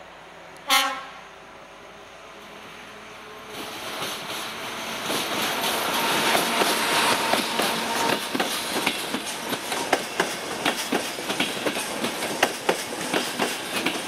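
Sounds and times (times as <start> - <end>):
train running noise: 0.0 - 14.0
train horn toot: 0.6 - 1.3.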